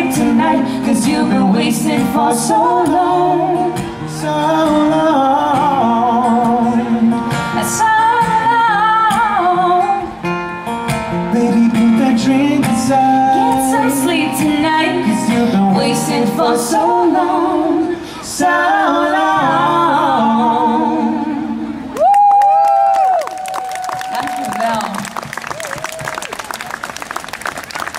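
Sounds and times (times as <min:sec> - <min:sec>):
woman singing: 0:00.0 - 0:03.8, 0:07.6 - 0:10.2, 0:13.2 - 0:21.6
acoustic guitar: 0:00.0 - 0:23.1.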